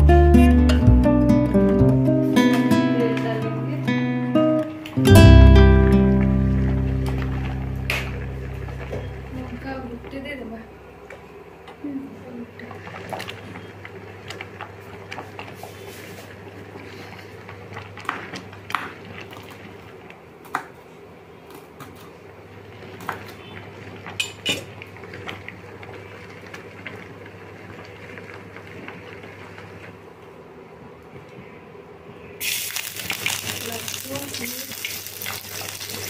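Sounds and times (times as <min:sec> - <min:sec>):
steady low hum: 0:02.7 - 0:15.6.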